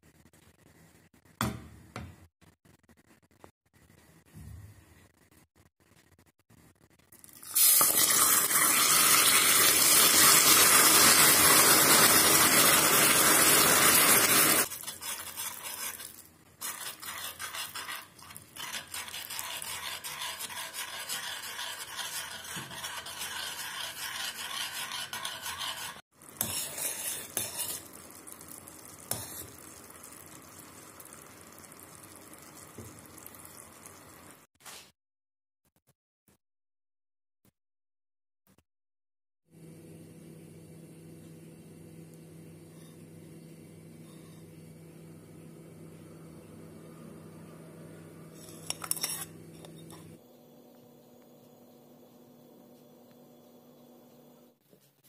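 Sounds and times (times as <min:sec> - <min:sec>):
hot sugar hissing and sizzling: 0:07.2 - 0:34.4
spoon scraping in pan: 0:13.8 - 0:31.0, 0:44.0 - 0:44.5, 0:48.3 - 0:50.2.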